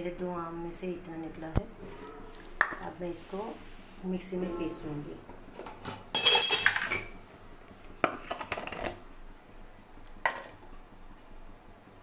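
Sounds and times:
metal bowl and jar clattering: 0:05.6 - 0:07.2.

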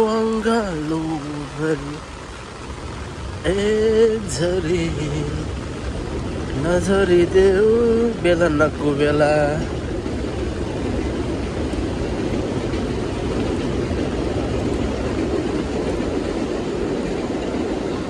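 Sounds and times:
heavy rain: 0:00.0 - 0:18.0.

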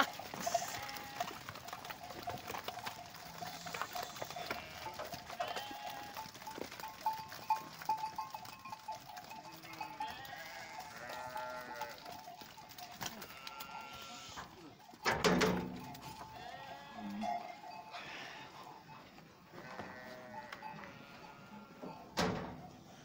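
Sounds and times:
sheep bleating: 0:00.0 - 0:01.8, 0:03.3 - 0:06.3, 0:09.4 - 0:12.1, 0:13.0 - 0:14.5, 0:16.2 - 0:18.8, 0:19.5 - 0:22.0
hoof knocks and shuffling: 0:00.0 - 0:23.0.

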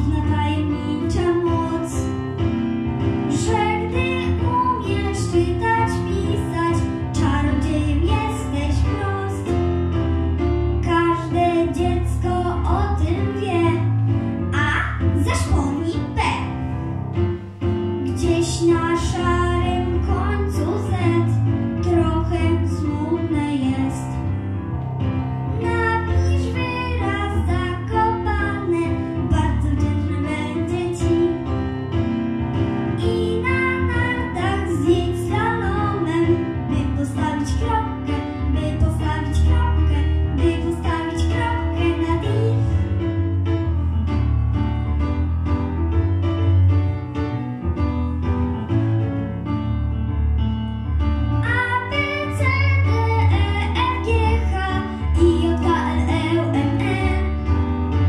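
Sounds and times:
girl singing into microphone: 0:00.0 - 0:02.1, 0:03.3 - 0:09.6, 0:10.8 - 0:16.5, 0:18.0 - 0:24.2, 0:25.5 - 0:31.6, 0:33.0 - 0:42.8, 0:51.4 - 0:57.4
instrumental music with bass line: 0:00.0 - 0:58.0.

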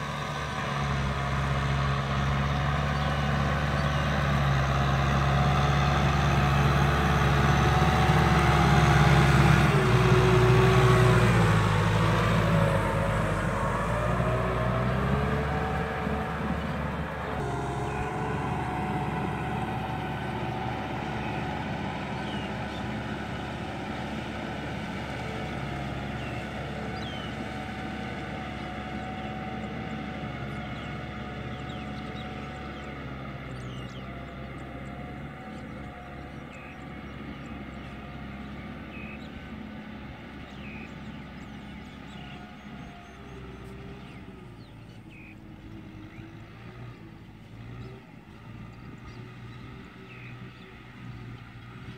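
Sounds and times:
tractor engine running: 0:00.0 - 0:51.9.

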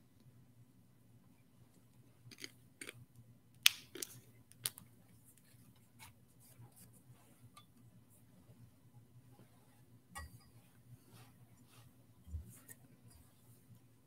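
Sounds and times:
low steady hum: 0:00.0 - 0:14.0
light clicks of metal vessels: 0:10.1 - 0:10.6.

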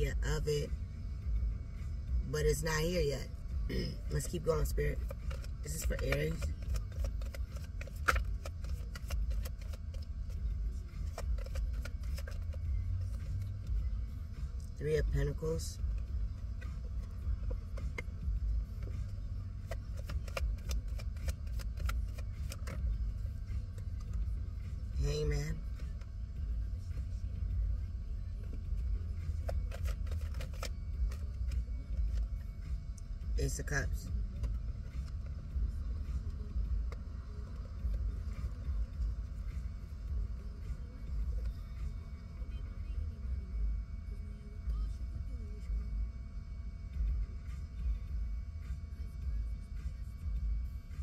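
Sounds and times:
steady low rumble: 0:00.0 - 0:51.0
cards shuffling: 0:05.0 - 0:10.4, 0:11.0 - 0:13.6, 0:18.8 - 0:22.8, 0:29.3 - 0:32.3.

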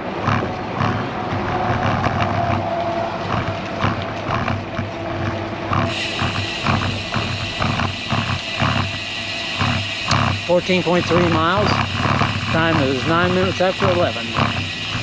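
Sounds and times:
wind buffeting microphone: 0:00.0 - 0:09.0
bicycle tyres on concrete: 0:00.0 - 0:15.0.

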